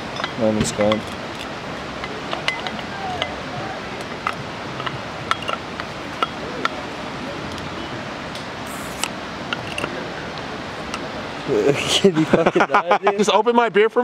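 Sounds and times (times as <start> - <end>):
steady rushing background noise: 0.0 - 14.0
glass bottles clicking together: 0.1 - 3.4, 4.0 - 6.8, 9.0 - 10.0.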